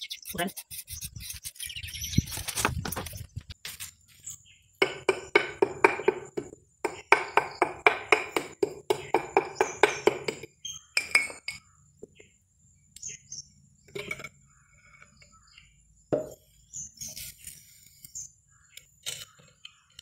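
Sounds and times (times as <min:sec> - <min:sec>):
wooden block knocking on cement: 0:04.8 - 0:11.3, 0:16.1 - 0:16.4.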